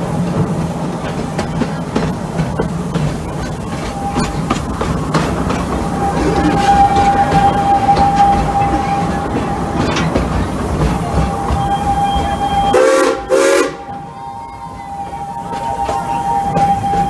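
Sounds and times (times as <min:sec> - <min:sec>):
train rumble and clatter: 0:00.0 - 0:17.0
steam whistle blasts: 0:05.9 - 0:10.0, 0:11.0 - 0:17.0.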